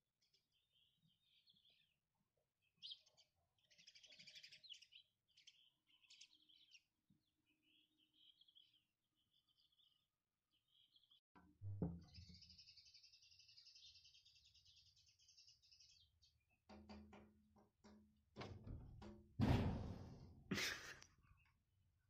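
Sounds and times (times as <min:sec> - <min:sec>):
sharp knocks and thumps: 0:11.6 - 0:12.2, 0:16.7 - 0:20.7.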